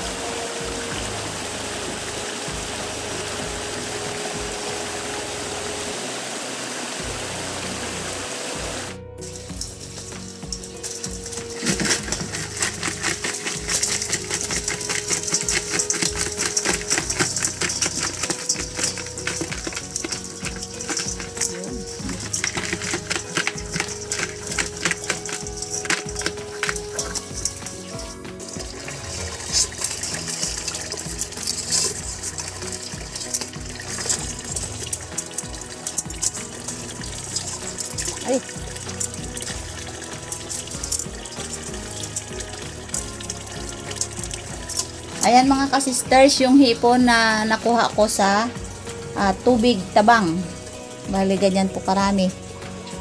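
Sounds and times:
water pouring and splashing: 0:00.0 - 0:53.0
crabs rattling in metal basin: 0:09.2 - 0:53.0.

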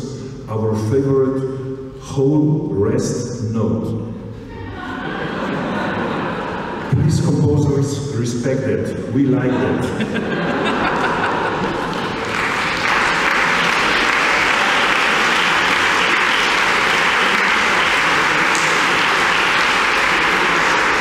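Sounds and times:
audience applauding: 0:10.1 - 0:21.0.

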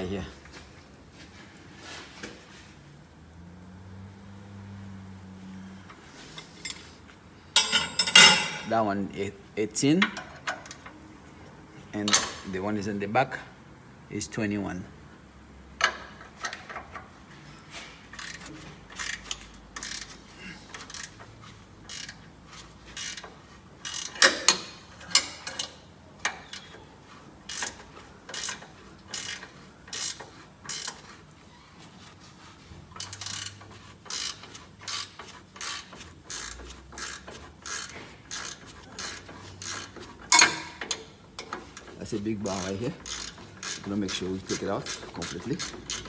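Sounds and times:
ratchet wrench clicking: 0:18.1 - 0:22.3, 0:22.9 - 0:26.8, 0:27.4 - 0:31.0, 0:32.9 - 0:46.0.

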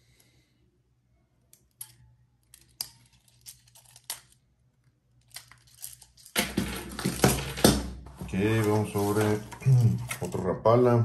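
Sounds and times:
plastic lures and hooks clicking: 0:01.5 - 0:06.4.

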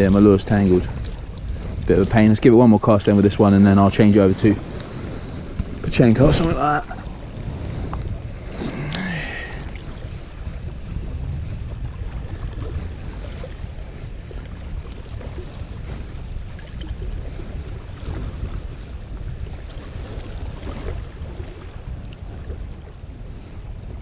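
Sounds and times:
sea washing against rocks: 0:00.0 - 0:24.0
wind on microphone: 0:00.0 - 0:24.0.

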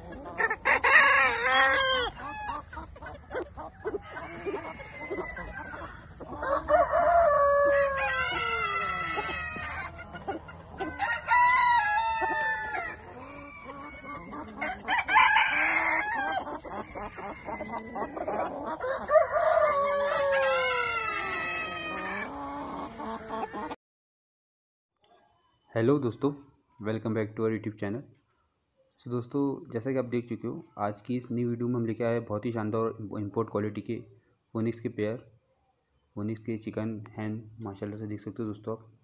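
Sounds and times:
roosters crowing: 0:00.0 - 0:23.8.

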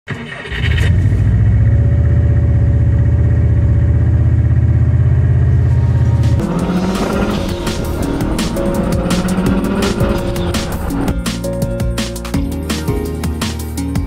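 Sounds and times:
car engine throbbing: 0:00.7 - 0:12.3.

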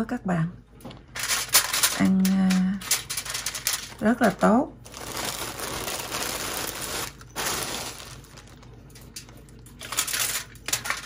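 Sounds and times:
foil crinkling: 0:02.9 - 0:11.0.

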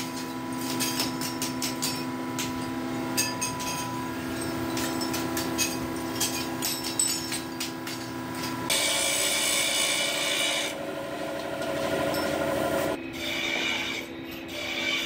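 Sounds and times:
steady hum: 0:07.9 - 0:13.0
file rasping on metal: 0:08.7 - 0:10.8, 0:11.7 - 0:15.0.

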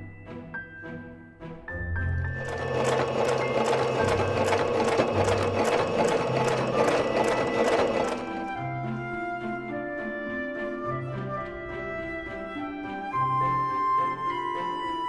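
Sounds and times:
background music: 0:00.0 - 0:15.0
sewing machine running: 0:02.3 - 0:08.6.

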